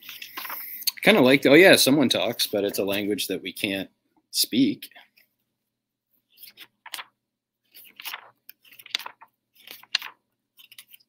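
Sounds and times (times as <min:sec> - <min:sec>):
paper pages rustling: 0:00.0 - 0:00.7, 0:06.2 - 0:11.0.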